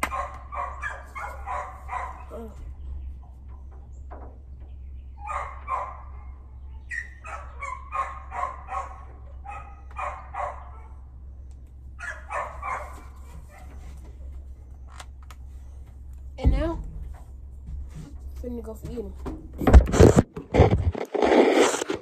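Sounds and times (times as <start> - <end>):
dog barking: 0.0 - 2.5, 5.2 - 11.0, 12.0 - 13.8
steady low hum: 0.0 - 22.0.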